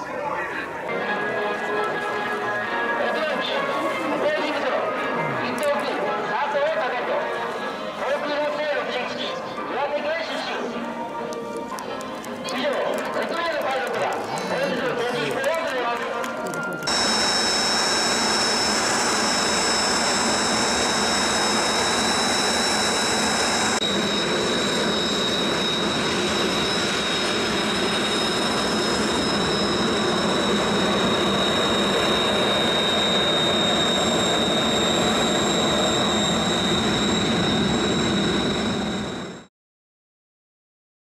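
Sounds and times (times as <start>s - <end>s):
jet engine roar: 13.0s - 39.5s
high turbine whine: 16.6s - 39.5s.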